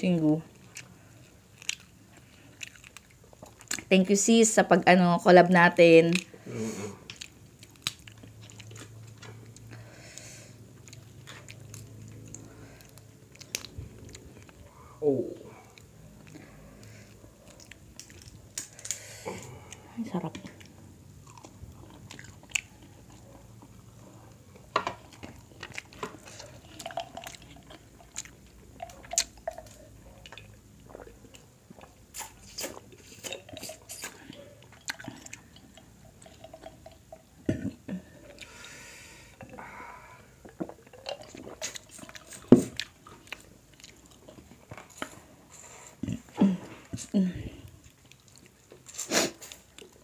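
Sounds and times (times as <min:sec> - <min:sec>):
chewing and lip smacks: 0:00.5 - 0:03.9, 0:07.0 - 0:14.8, 0:15.6 - 0:37.3, 0:40.4 - 0:47.1, 0:47.7 - 0:50.0
crab shell cracking: 0:07.1 - 0:09.0.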